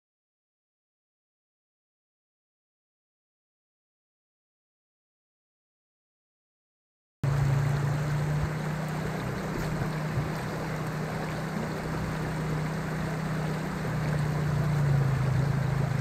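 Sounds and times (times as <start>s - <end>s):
creek water rushing over rocks: 7.2s - 16.0s
farm vehicle engine drone: 7.2s - 16.0s.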